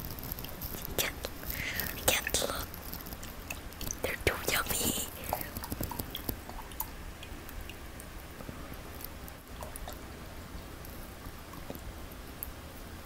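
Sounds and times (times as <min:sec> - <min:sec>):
milk trickling into bowl: 0:04.9 - 0:08.9.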